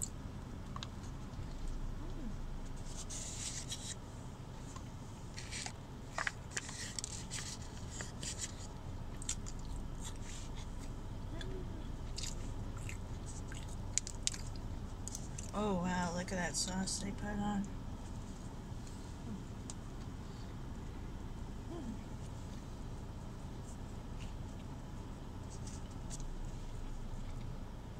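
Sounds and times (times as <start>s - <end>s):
steady low hum: 0.0s - 27.9s
person chewing burger: 4.8s - 11.0s, 12.0s - 15.5s.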